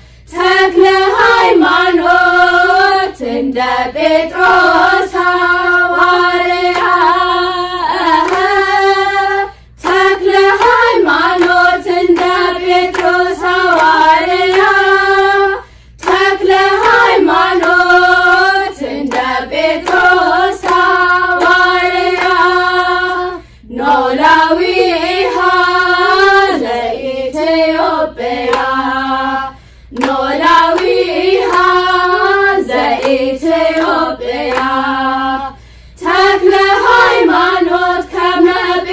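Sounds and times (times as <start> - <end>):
girls' choir singing a hymn: 0.3 - 38.9
hand clapping: 6.6 - 7.2, 8.0 - 8.8, 9.8 - 15.3, 16.0 - 22.5, 28.4 - 28.8, 29.9 - 34.8.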